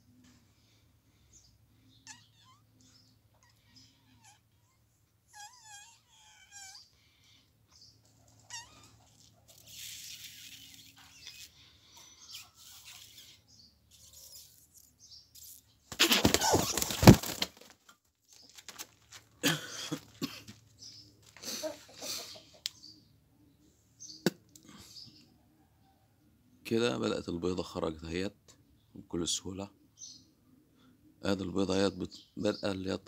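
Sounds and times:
hen flapping wings: 0:15.9 - 0:17.8
rustling: 0:15.9 - 0:19.4.

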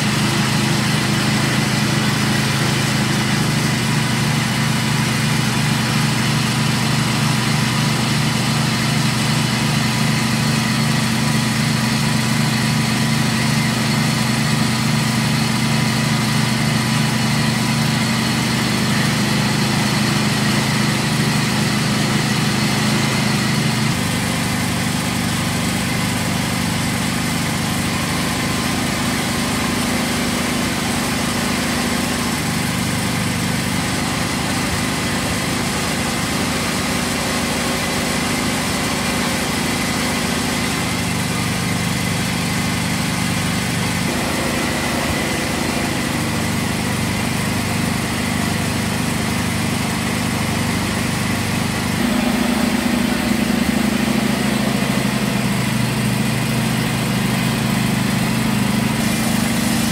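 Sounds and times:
peanut grinding machine droning: 0:49.6 - 0:59.9.

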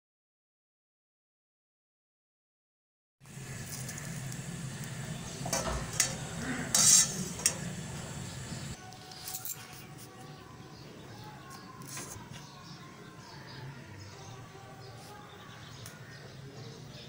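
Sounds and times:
steady low hum: 0:03.2 - 0:08.8
metal utensils clinking against pan: 0:05.6 - 0:07.7.

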